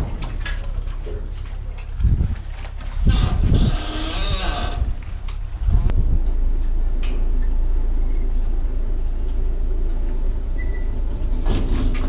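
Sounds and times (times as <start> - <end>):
ferry engine humming: 3.0 - 12.0.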